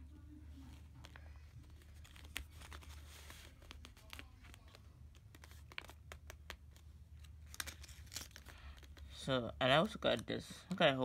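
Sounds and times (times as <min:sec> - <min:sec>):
paper rustling: 0:00.6 - 0:09.2.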